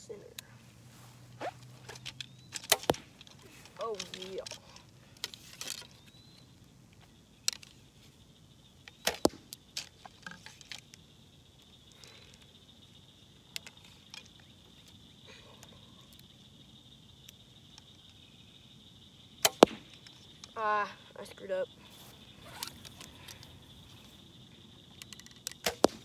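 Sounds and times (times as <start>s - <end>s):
bow clicks and knocks: 1.4s - 8.1s, 8.8s - 11.0s, 19.4s - 20.6s, 22.4s - 26.0s.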